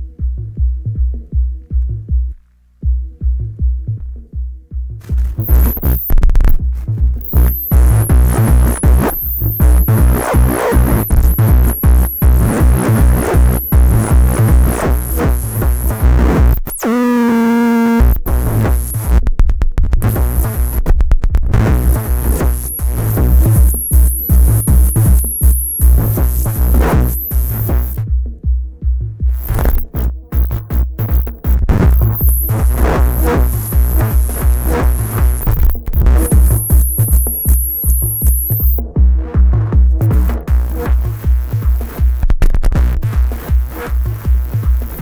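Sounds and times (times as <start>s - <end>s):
fast low beat: 0.0s - 45.0s
distorted electronic noise-techno: 5.0s - 28.1s, 29.3s - 38.9s, 39.9s - 45.0s
high feedback squeals: 5.4s - 6.2s, 7.2s - 19.0s, 22.1s - 28.0s, 29.4s - 38.8s.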